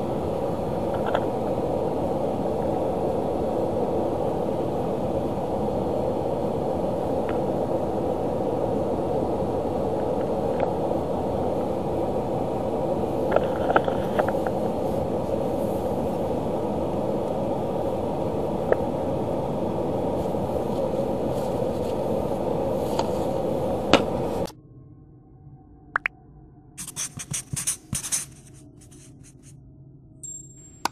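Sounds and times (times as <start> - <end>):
rushing noise in car cabin: 0.0 - 24.5.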